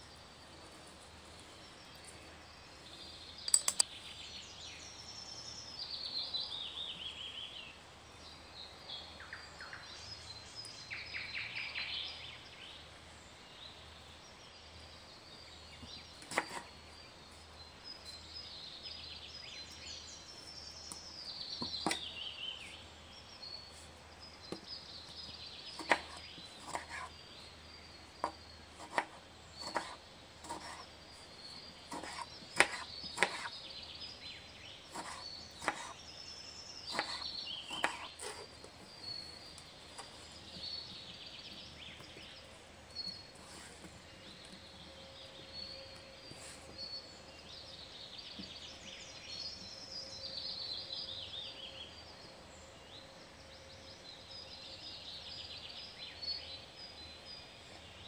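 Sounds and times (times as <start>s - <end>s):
songbird trill: 0.0s - 58.0s
knife cutting on plastic board: 16.2s - 16.7s, 21.6s - 22.1s, 25.8s - 27.1s, 28.2s - 30.9s, 31.9s - 33.5s, 34.9s - 36.0s, 36.9s - 38.5s.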